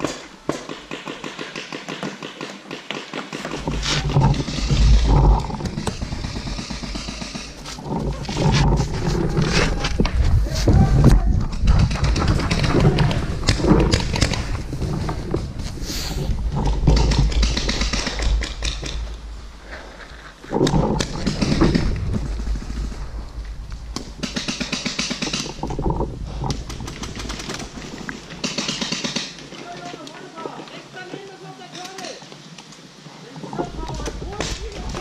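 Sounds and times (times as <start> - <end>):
gear knocks: 3.4 - 19.1
wind on microphone: 7.6 - 19.6, 20.5 - 24.3.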